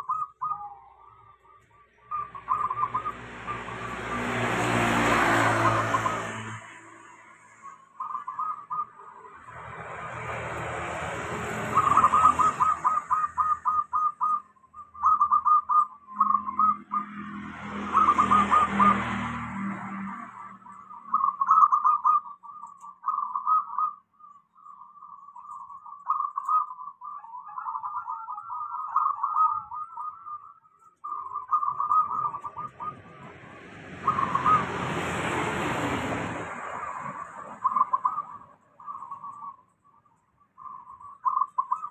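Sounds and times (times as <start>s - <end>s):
dove cooing: 0.0s - 6.6s, 8.0s - 9.2s, 10.1s - 17.2s, 17.9s - 24.3s, 25.1s - 39.7s, 40.6s - 41.9s
vehicle passing: 2.0s - 14.0s, 16.1s - 21.4s, 31.2s - 39.5s.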